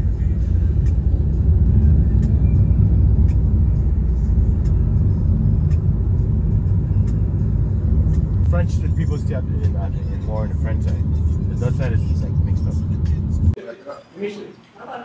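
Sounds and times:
car road and engine rumble: 0:00.0 - 0:13.6.

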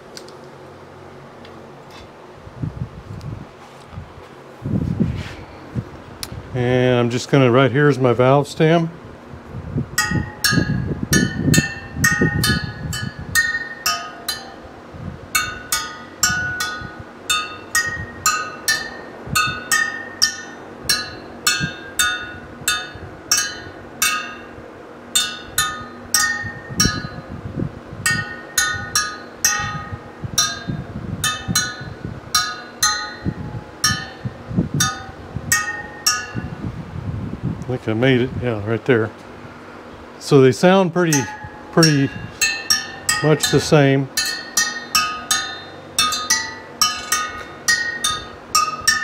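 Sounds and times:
spokes pinging when tapped: 0:15.4 - 0:24.5, 0:28.1 - 0:34.2.

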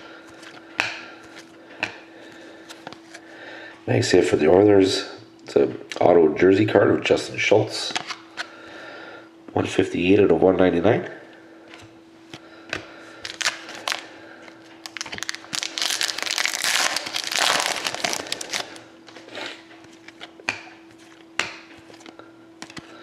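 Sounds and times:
crinkly rustling of cards: 0:00.2 - 0:01.6, 0:13.2 - 0:21.2, 0:21.8 - 0:23.0.

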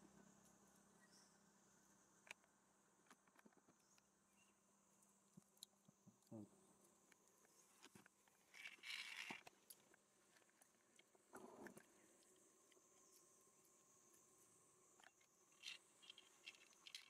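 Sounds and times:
faint steady hiss: 0:00.0 - 0:17.0
soft rustle: 0:06.8 - 0:17.0.

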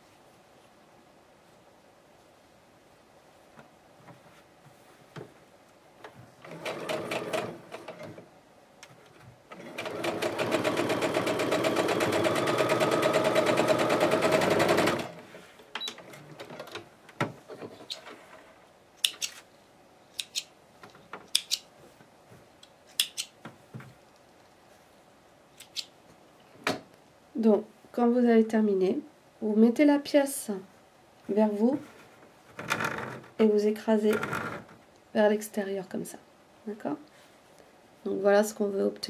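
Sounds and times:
sewing machine stitching: 0:06.4 - 0:08.2, 0:09.5 - 0:15.3.

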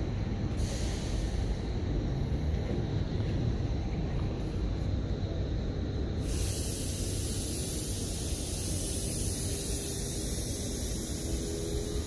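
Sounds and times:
electric train rumbling: 0:00.0 - 0:12.0
compressed air hissing: 0:00.5 - 0:01.8, 0:06.1 - 0:12.0.

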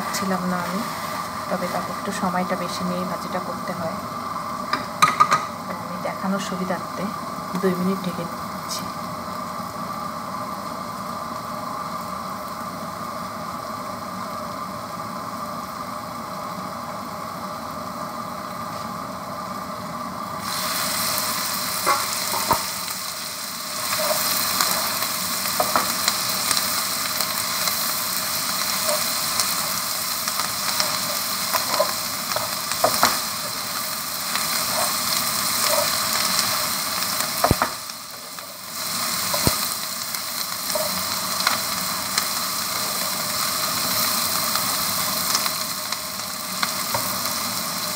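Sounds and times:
food sizzling in a wok: 0:00.0 - 0:47.9
spatula scraping a pan: 0:21.8 - 0:22.7, 0:34.6 - 0:36.1.

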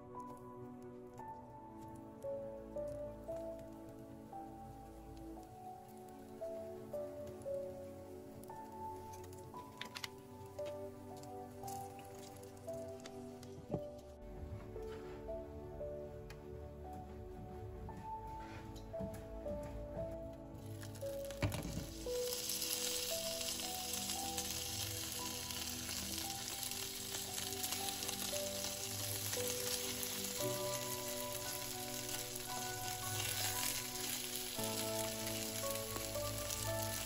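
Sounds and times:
background music: 0:00.0 - 0:37.0
food sizzling in a pan: 0:20.7 - 0:37.0.

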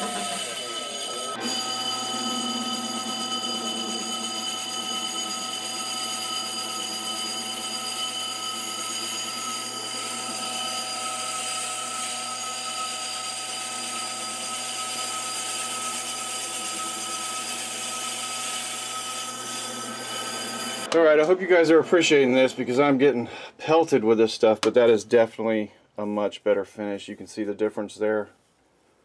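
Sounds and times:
machine running hum: 0:00.0 - 0:13.0
lathe cutting metal with ringing: 0:00.0 - 0:23.0.

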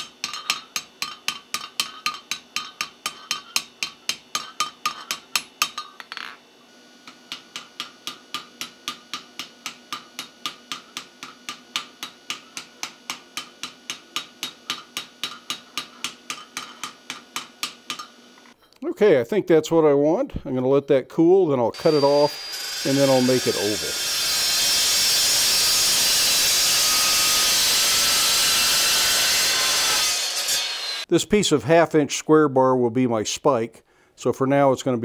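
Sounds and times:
hammer striking hot steel: 0:00.0 - 0:06.2, 0:07.0 - 0:18.2.

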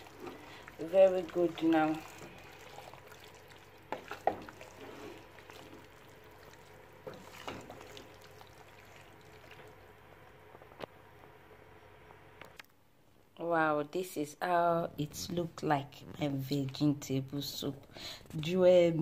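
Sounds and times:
soup being stirred in a pot: 0:00.0 - 0:10.0
faint bubbling: 0:00.0 - 0:10.4.

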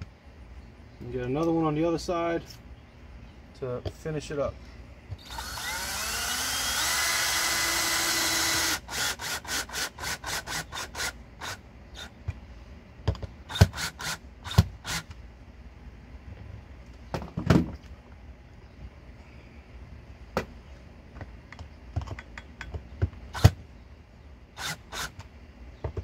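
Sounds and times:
cordless drill driving a screw: 0:05.2 - 0:12.1, 0:13.5 - 0:15.1, 0:24.6 - 0:25.2.

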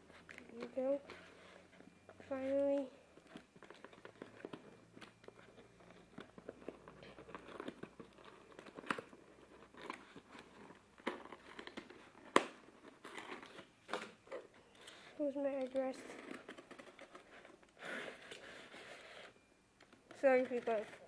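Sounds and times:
paper mailer crinkling: 0:20.1 - 0:21.0.

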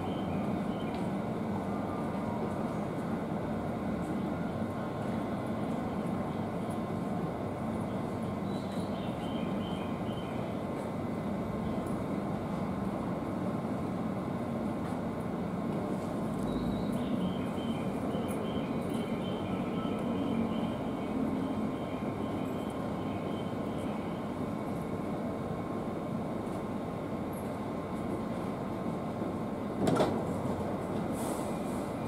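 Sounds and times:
electric train equipment humming: 0:00.0 - 0:31.1.

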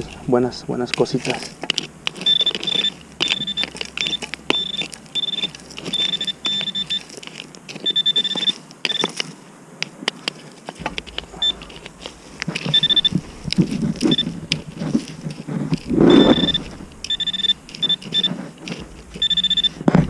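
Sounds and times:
coil scraping and knocking ground: 0:00.0 - 0:09.1, 0:10.1 - 0:20.0
metal detector beeps: 0:02.0 - 0:07.2, 0:07.8 - 0:09.2, 0:10.9 - 0:11.8, 0:12.5 - 0:14.6, 0:16.0 - 0:19.9.

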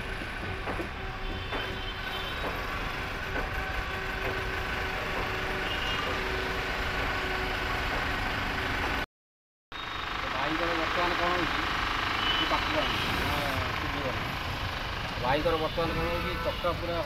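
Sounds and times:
steady engine-like hum: 0:00.0 - 0:09.1, 0:09.8 - 0:17.0.

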